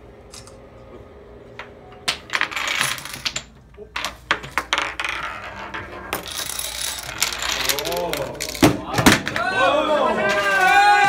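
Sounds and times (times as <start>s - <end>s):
plastic dominoes toppling: 4.1s - 8.8s.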